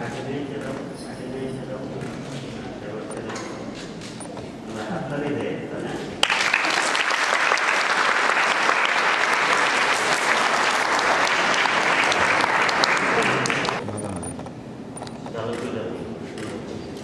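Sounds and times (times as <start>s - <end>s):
crowd applauding: 6.2s - 13.8s.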